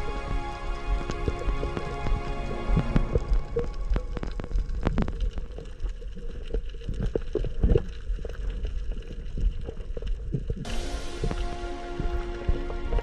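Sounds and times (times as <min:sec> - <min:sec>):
underwater rumble of water: 0:00.0 - 0:13.0
clicks and knocks underwater: 0:00.2 - 0:13.0.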